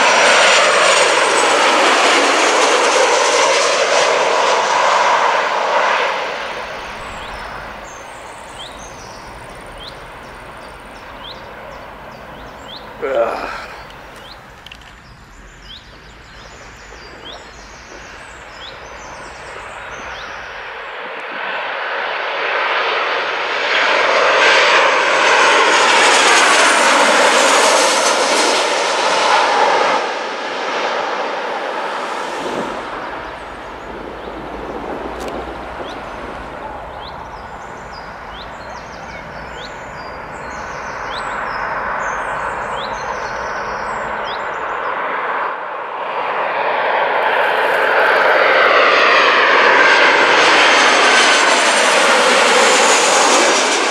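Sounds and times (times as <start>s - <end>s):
airplane landing rush: 0.0s - 53.9s
jet airliner approaching: 0.0s - 53.9s
bird chirps: 6.6s - 20.9s, 36.9s - 44.9s.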